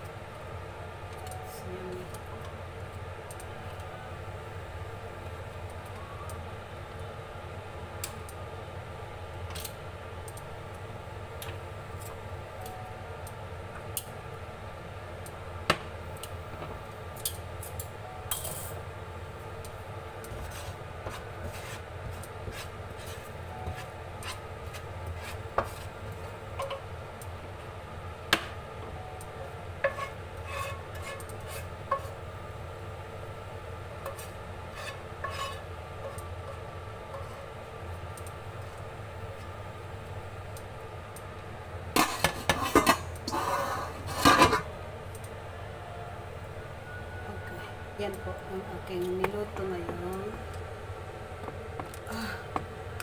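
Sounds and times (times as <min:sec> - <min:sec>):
steady low hum: 0:00.0 - 0:53.0
wooden spatula scraping a pan: 0:20.3 - 0:26.0, 0:29.8 - 0:32.2, 0:34.1 - 0:37.5.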